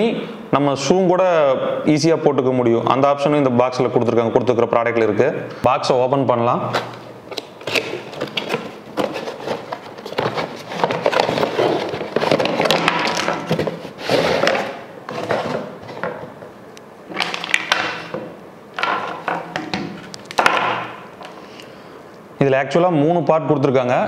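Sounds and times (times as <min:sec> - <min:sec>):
plastic parts clattering: 0:06.8 - 0:16.2
cardboard flaps rustling: 0:07.6 - 0:16.1.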